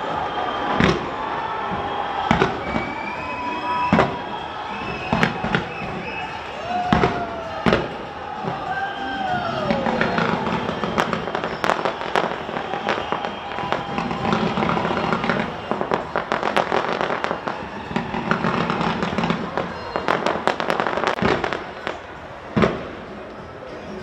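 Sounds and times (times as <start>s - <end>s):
loud fireworks bang: 0.0s - 23.1s
continuous fireworks crackling: 0.0s - 23.7s
fireworks cracks and pops: 9.7s - 22.0s.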